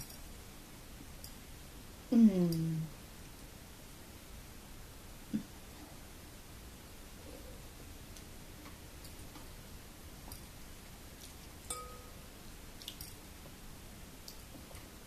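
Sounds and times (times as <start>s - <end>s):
metal spoon clicking on glass bowl: 11.7s - 12.1s
ringing clink: 11.7s - 12.2s.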